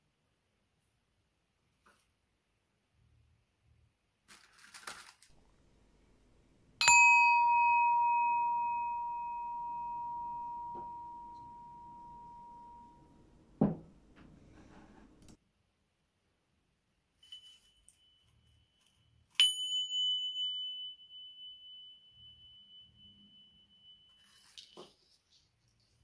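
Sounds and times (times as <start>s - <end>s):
brief rustle: 4.3s - 5.4s
singing bowl ringing: 6.8s - 15.3s, 19.4s - 24.8s
bowl set down knock: 13.6s - 15.2s.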